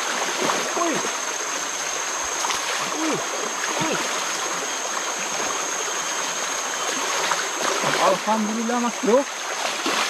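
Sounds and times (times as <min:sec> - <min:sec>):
floodwater rushing: 0:00.0 - 0:10.0.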